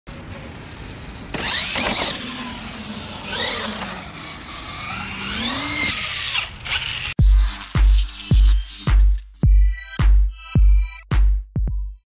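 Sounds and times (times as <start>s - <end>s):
electric motor whining: 0.2s - 8.3s.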